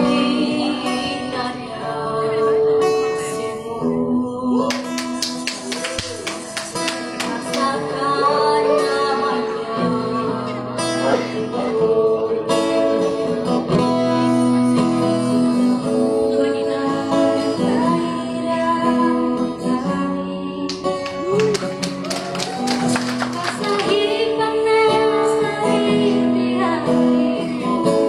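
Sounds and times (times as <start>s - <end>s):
two voices singing a duet: 0.0s - 5.8s, 7.2s - 12.8s
classical guitar: 0.0s - 28.0s.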